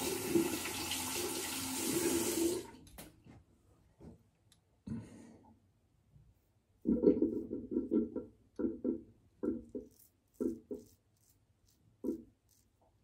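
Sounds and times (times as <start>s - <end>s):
razor scraping skin: 9.5s - 13.0s.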